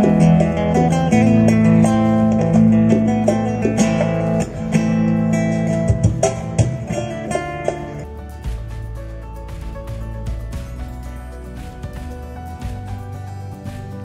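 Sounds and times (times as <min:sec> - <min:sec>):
acoustic guitar playing: 0:00.0 - 0:14.0
hand drums striking: 0:00.0 - 0:14.0.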